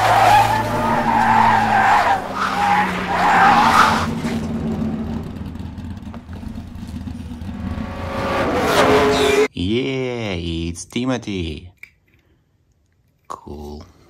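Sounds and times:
low rumble: 0.0s - 8.3s
tires skidding and squealing: 0.0s - 9.5s.

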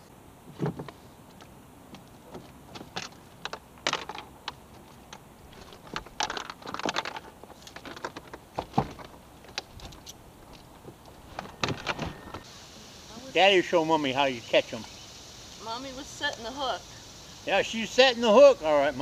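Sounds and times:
fishing gear clicking and rattling: 2.7s - 12.2s.

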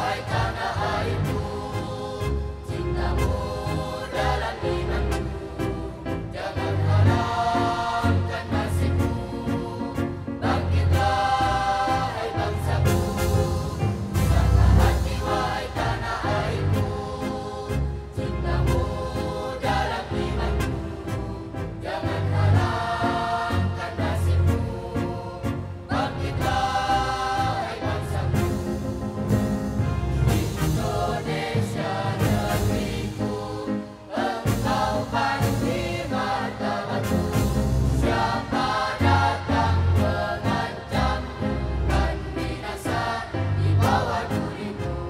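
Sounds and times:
choir singing: 0.0s - 45.0s
instrumental accompaniment with bass: 0.0s - 45.0s.

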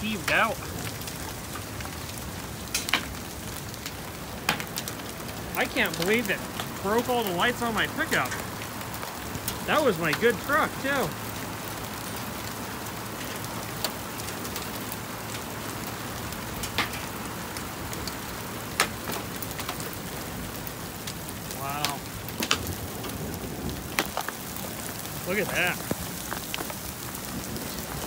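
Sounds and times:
hail hissing: 0.0s - 28.0s
hailstones cracking on hard surfaces: 0.0s - 28.0s.

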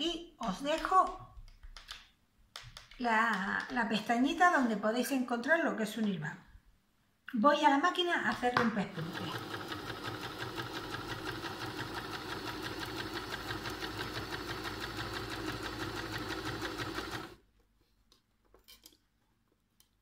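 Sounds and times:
sewing machine running: 8.9s - 17.4s.

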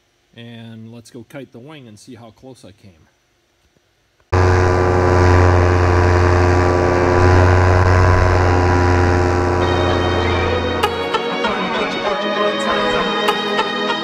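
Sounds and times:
paramotor engine droning: 4.3s - 12.1s.

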